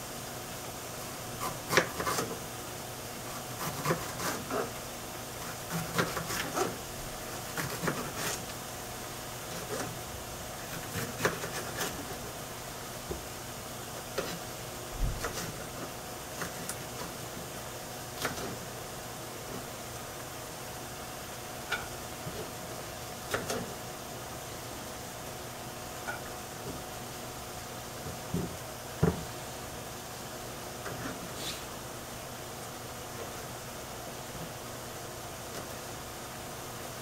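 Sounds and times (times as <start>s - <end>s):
steady background hum: 0.0s - 37.0s
knife knocking on cutting board: 28.3s - 29.3s.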